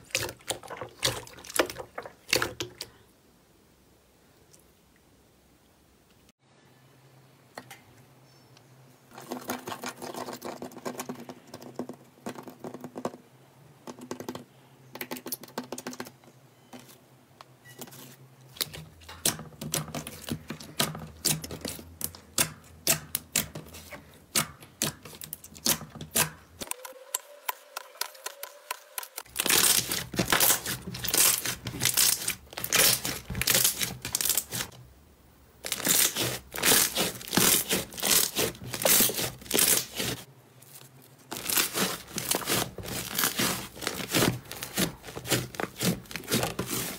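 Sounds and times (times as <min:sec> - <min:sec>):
hands squishing slime: 0:27.7 - 0:34.7, 0:35.7 - 0:40.3, 0:41.3 - 0:46.9.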